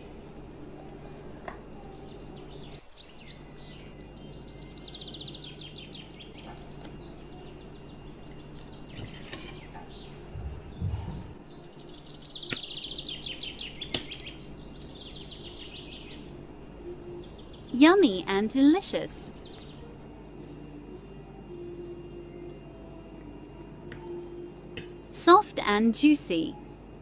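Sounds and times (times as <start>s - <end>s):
low steady hum: 0.0s - 27.0s
small bird chirping trills: 0.6s - 17.8s
dull thuds: 10.3s - 11.4s.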